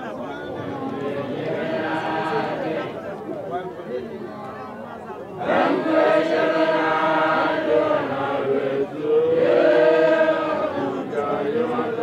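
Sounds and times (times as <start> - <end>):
voices chanting long notes: 5.4 - 12.0.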